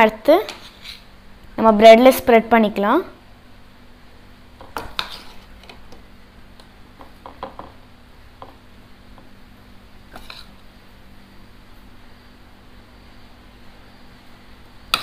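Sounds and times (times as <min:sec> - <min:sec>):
metal spoon scraping ceramic plate: 0:00.5 - 0:01.1, 0:04.8 - 0:05.5, 0:10.2 - 0:10.6.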